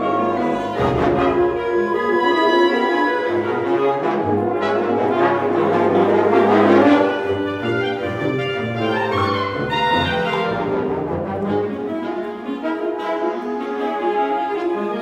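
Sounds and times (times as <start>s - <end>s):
concert band playing: 0.0s - 6.9s
brass: 0.0s - 15.0s.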